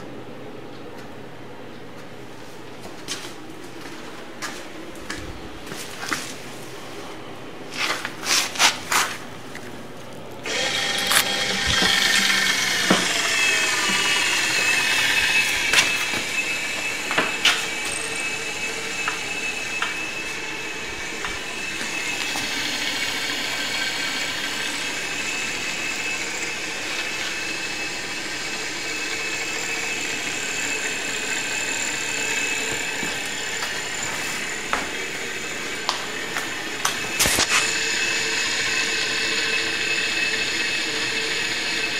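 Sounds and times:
electric motor whining: 10.4 - 41.9.

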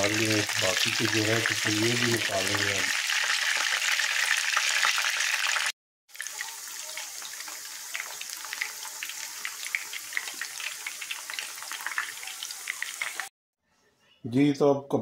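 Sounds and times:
meat sizzling in hot oil: 0.0 - 13.3.

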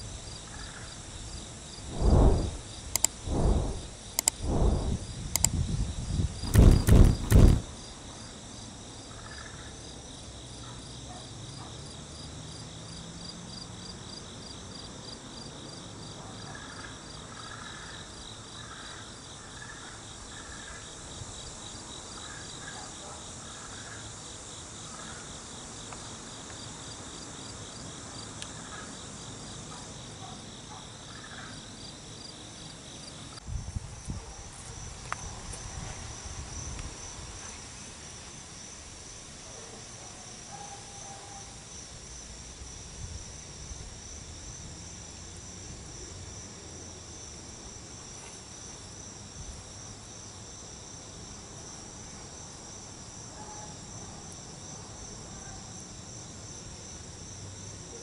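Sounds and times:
insects chorus pulsing: 0.2 - 10.2
low rumbling thumps: 1.8 - 5.5, 6.4 - 7.6.

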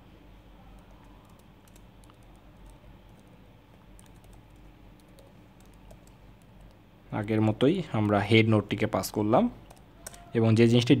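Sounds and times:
keyboard typing: 0.7 - 7.3, 9.6 - 10.3.

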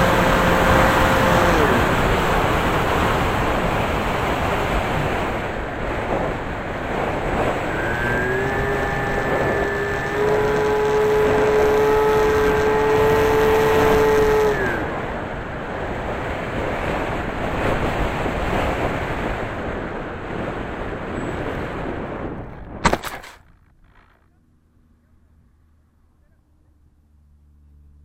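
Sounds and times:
wind rushing over microphone: 0.0 - 22.9
electric motors whining: 7.4 - 14.9.

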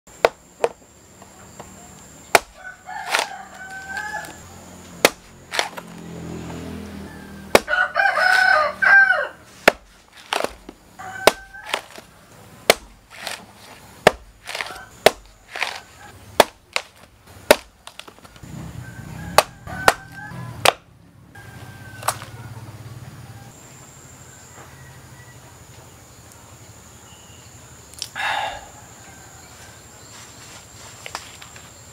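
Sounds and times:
machete chopping coconut: 0.1 - 0.8, 2.2 - 6.6, 7.4 - 8.6, 9.5 - 18.5, 19.3 - 20.9
chicken calls: 1.4 - 4.5, 7.0 - 9.5, 10.2 - 12.2, 14.5 - 16.2, 18.4 - 20.7, 21.4 - 23.6
rooster crowing: 1.8 - 4.6, 6.0 - 9.5, 10.9 - 12.2, 14.5 - 15.0, 18.4 - 20.7, 21.3 - 23.6, 24.2 - 25.6, 28.2 - 30.0.

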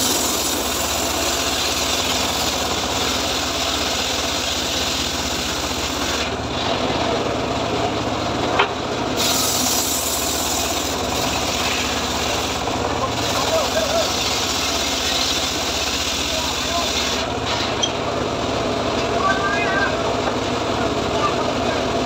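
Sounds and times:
saw blade rasping through wood: 0.0 - 6.7, 9.2 - 18.0
engine hum: 0.0 - 22.0.

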